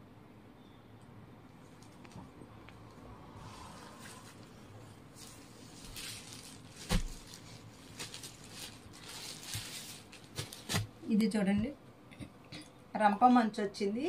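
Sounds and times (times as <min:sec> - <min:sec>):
cloth rustling and swishing: 0:03.4 - 0:10.9.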